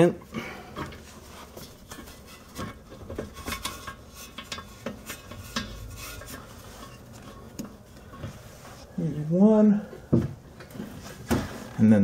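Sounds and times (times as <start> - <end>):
metal bolt clicking and scraping: 1.8 - 8.2.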